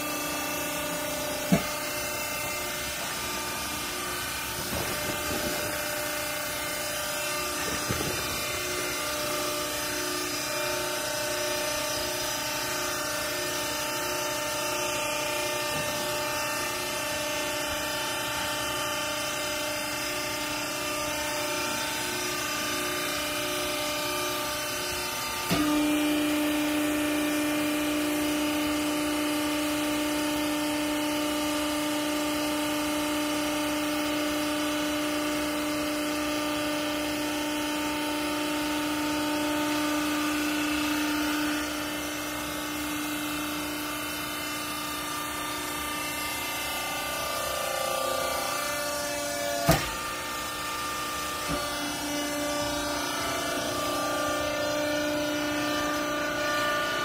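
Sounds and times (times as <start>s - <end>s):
louder low hum: 0.0s - 17.9s
baler motor hum and whine: 0.0s - 57.0s.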